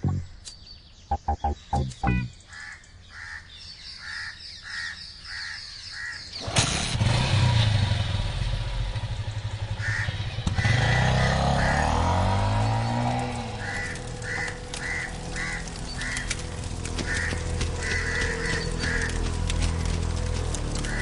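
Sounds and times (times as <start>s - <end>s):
crows cawing: 2.5s - 6.3s, 9.6s - 21.0s
motorcycle engine passing by: 6.4s - 21.0s.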